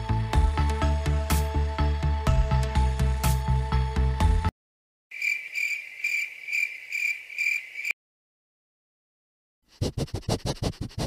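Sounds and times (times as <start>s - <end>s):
cricket chirping: 5.1s - 8.0s
scratchy strokes: 9.7s - 11.0s.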